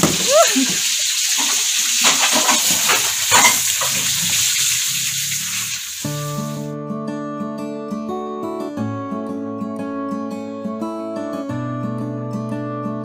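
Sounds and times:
kitchen tap running: 0:00.0 - 0:06.6
acoustic guitar music: 0:06.0 - 0:13.0.

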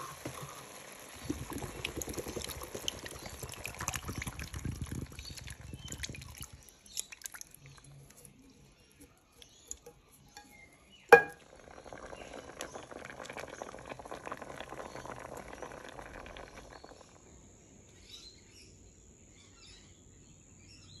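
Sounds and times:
liquid pouring over shells: 0:00.0 - 0:08.5, 0:11.1 - 0:17.2
crackling hiss of cooking: 0:00.0 - 0:18.1
sharp knock: 0:11.1 - 0:11.4.

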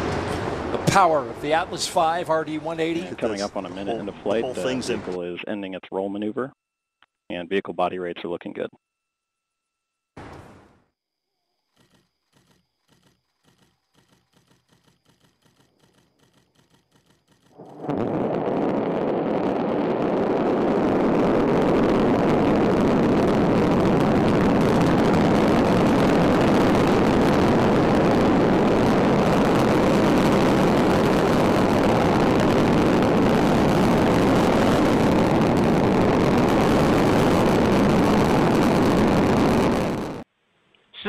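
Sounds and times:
rocket engine rumble: 0:00.0 - 0:05.2, 0:17.5 - 0:40.2.

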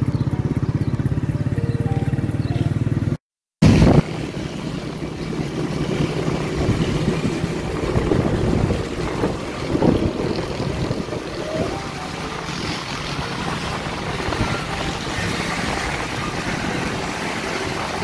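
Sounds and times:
motorbike engine and road noise: 0:00.0 - 0:18.0
wind rushing over microphone: 0:03.6 - 0:18.0.

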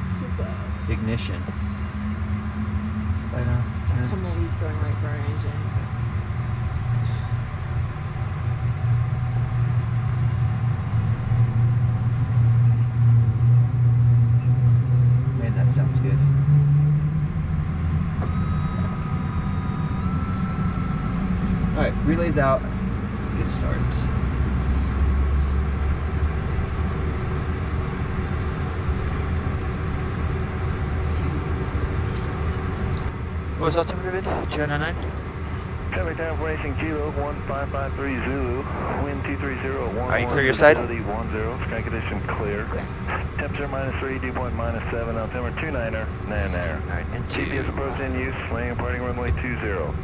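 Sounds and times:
faint high whine: 0:00.0 - 0:16.2, 0:17.2 - 0:25.5, 0:26.3 - 0:50.0
jet engine spooling up: 0:24.6 - 0:49.8.

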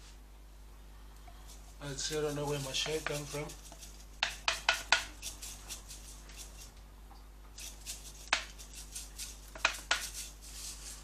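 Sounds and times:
seasoning containers clicking: 0:09.5 - 0:10.2.

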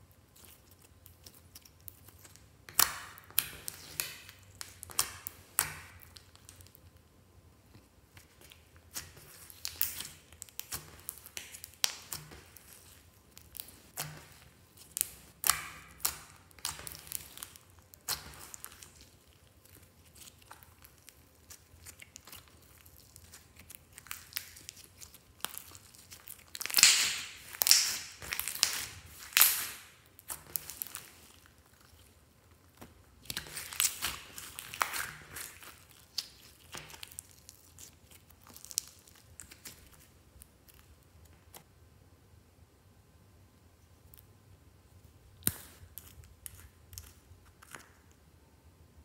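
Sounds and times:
slime crackling and popping: 0:00.3 - 0:07.0, 0:08.1 - 0:41.6, 0:45.3 - 0:48.2.

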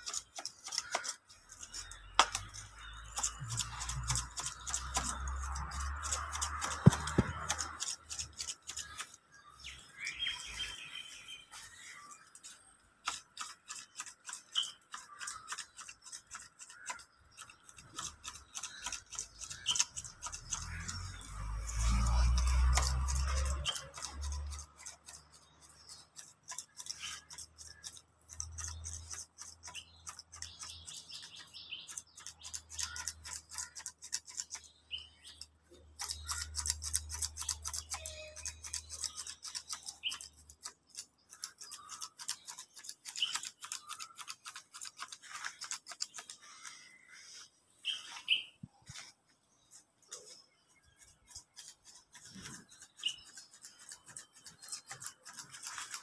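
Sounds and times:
grass shears snipping grass: 0:00.0 - 0:09.2.

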